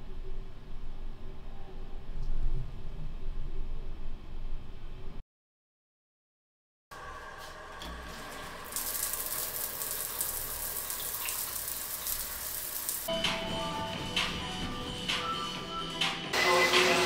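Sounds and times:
shower water on tiled floor: 7.0 - 13.1
music: 13.1 - 17.0.

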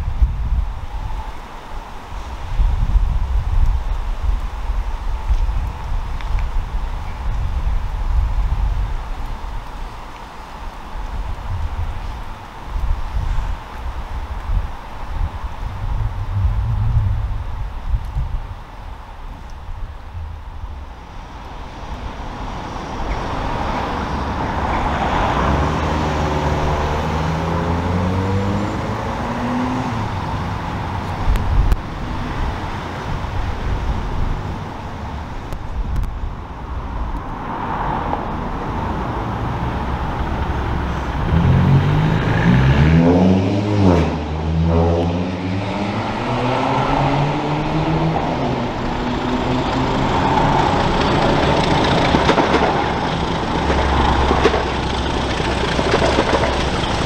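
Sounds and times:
diesel locomotive engine: 19.0 - 35.6, 46.8 - 57.0.

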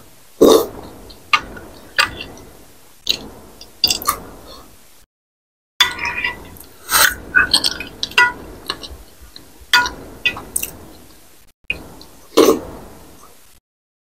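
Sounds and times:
cutlery clinking on glass bowl: 5.8 - 6.6.

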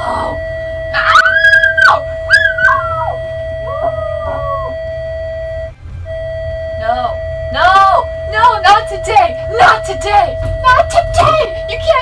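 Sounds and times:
steady alarm tone: 0.0 - 12.0
woman wailing: 1.0 - 4.8.

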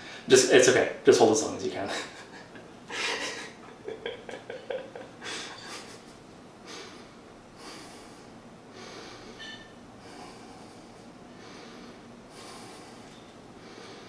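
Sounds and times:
man breathing hard: 5.2 - 6.0, 6.6 - 14.0.

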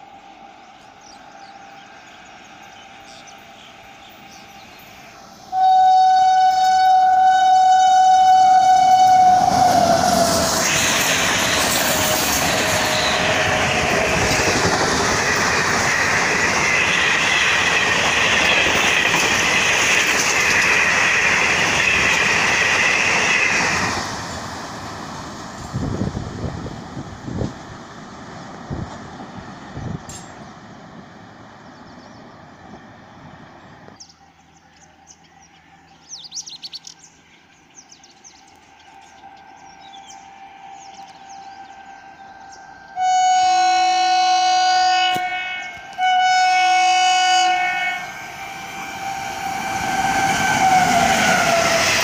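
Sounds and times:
locomotive horn blast: 5.5 - 10.5, 40.0 - 52.0
train coaches rushing and clattering: 8.1 - 34.0, 44.9 - 52.0.

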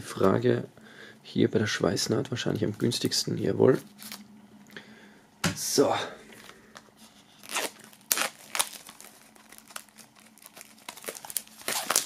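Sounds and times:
plastic film crinkling: 6.7 - 12.0.

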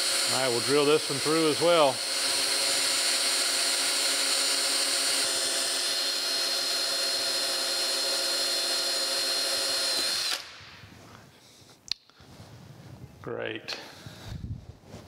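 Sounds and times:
cordless drill motor whine: 0.0 - 10.5
drill bit snapping: 0.0 - 10.6.

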